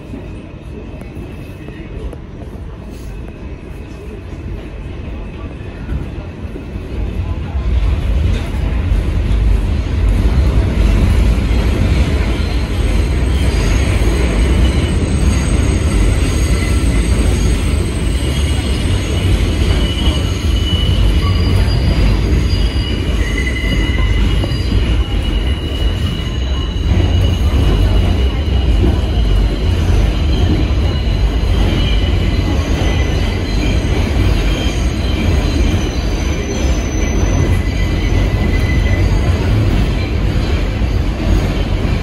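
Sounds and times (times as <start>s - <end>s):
subway car rumbling in tunnel: 0.0s - 42.0s
high wheel squeal: 12.2s - 41.1s.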